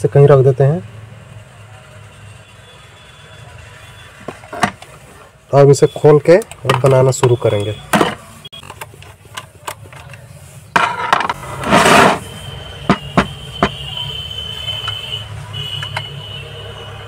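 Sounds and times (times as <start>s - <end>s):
plastic clicks and knocks: 6.4s - 10.2s.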